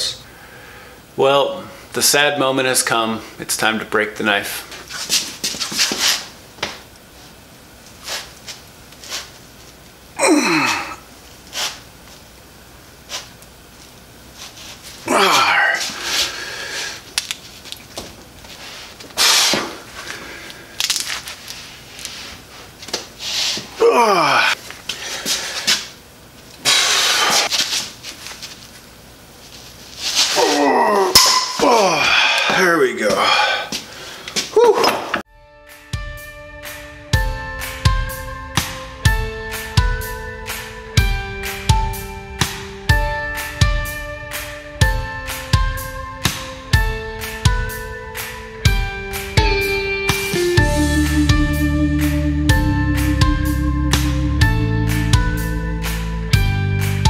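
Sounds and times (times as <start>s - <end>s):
man breathing with effort: 0.2s - 1.1s, 15.1s - 17.1s, 19.2s - 20.8s, 23.8s - 25.9s, 26.7s - 27.5s, 31.6s - 34.5s
man groaning: 10.2s - 11.1s, 15.0s - 16.0s, 23.8s - 24.6s, 30.4s - 33.8s, 34.5s - 35.2s
man straining and grunting: 10.2s - 11.1s, 15.0s - 16.0s, 23.8s - 24.6s, 30.4s - 33.8s
steel blade snapping: 31.1s - 31.6s.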